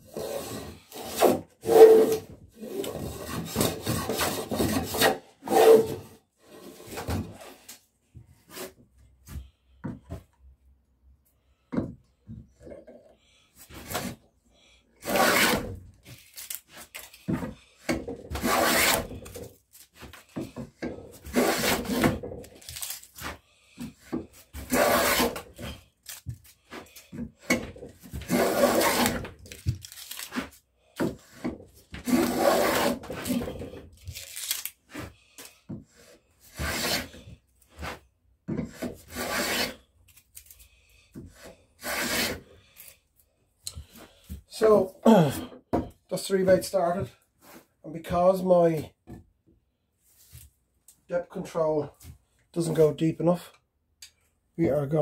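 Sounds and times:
hand plane scraping through wood: 0.1 - 7.6, 15.0 - 15.8, 16.7 - 22.6, 23.2 - 25.9, 26.6 - 29.4, 30.4 - 33.8, 35.9 - 39.9, 41.2 - 42.6.

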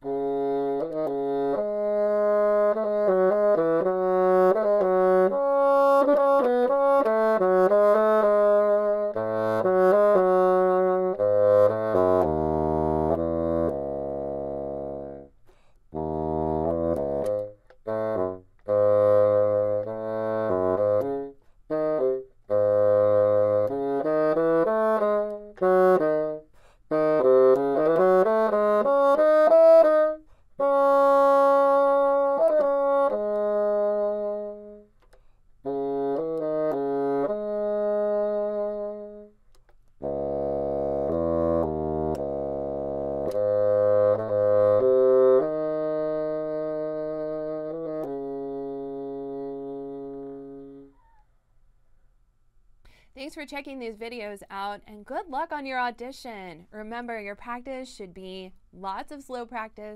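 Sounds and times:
solo bassoon playing: 0.0 - 51.2
player breathing: 15.4 - 15.9, 52.8 - 53.2.

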